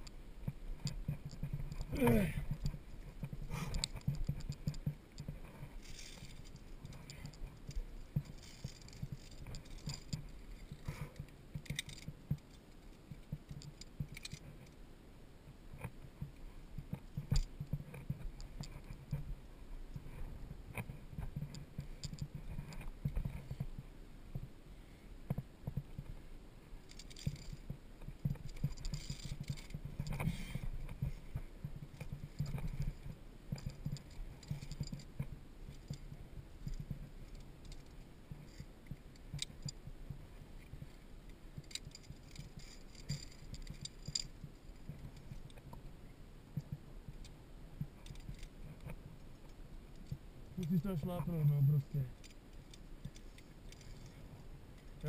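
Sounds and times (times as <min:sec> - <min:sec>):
climber knocking and rustling on rock: 0:00.0 - 0:14.8, 0:26.9 - 0:41.0, 0:41.6 - 0:45.9, 0:46.5 - 0:51.0
carabiners jangling on steel cable: 0:05.8 - 0:10.9, 0:11.5 - 0:12.4, 0:13.5 - 0:14.8, 0:26.9 - 0:39.8, 0:41.6 - 0:45.5, 0:48.0 - 0:48.5.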